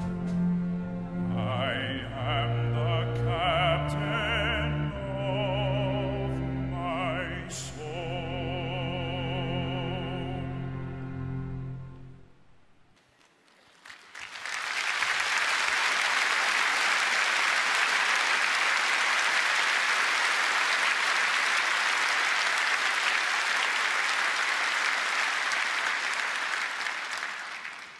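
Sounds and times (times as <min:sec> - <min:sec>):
large audience applauding: 0:13.0 - 0:27.9.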